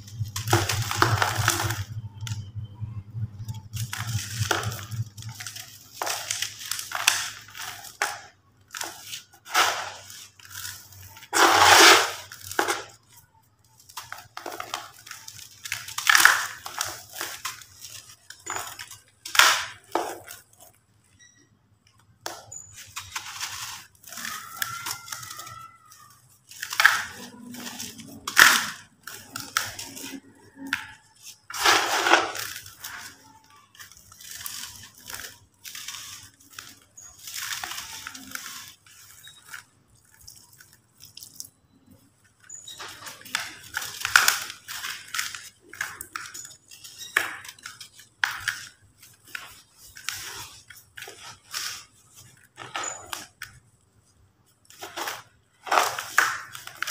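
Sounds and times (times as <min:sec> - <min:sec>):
gritty crunching of crushed cement: 0:00.1 - 0:01.9, 0:03.7 - 0:13.1, 0:26.2 - 0:41.4.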